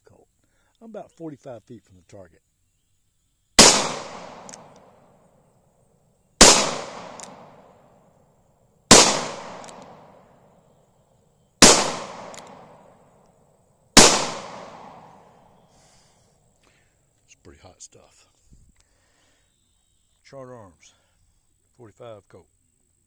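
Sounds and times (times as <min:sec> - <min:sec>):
revolver shots with echo: 0:03.6 - 0:04.8, 0:06.4 - 0:07.7, 0:08.9 - 0:10.2, 0:11.6 - 0:12.8, 0:14.0 - 0:15.3.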